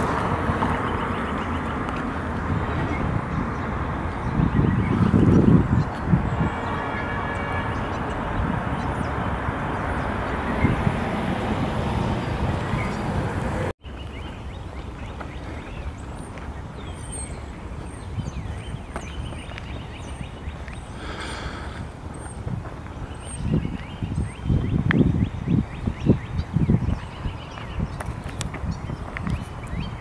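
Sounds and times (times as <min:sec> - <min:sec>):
wind rushing: 0:00.0 - 0:13.7
distant traffic noise: 0:00.0 - 0:30.0.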